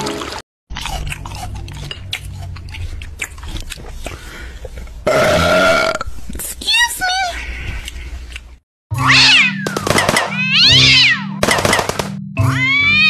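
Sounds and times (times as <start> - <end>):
person burping: 5.1 - 6.1.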